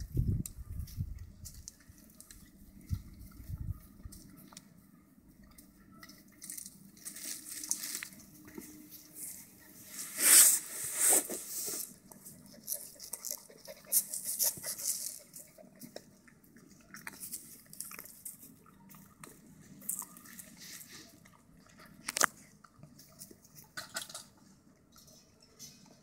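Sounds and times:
puppies mouthing and chewing: 0:11.9 - 0:26.0.

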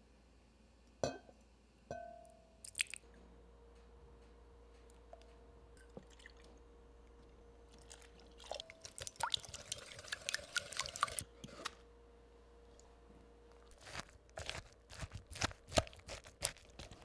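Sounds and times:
faint steady hum: 0:00.0 - 0:17.0
liquid dripping and splashing: 0:07.7 - 0:11.2.

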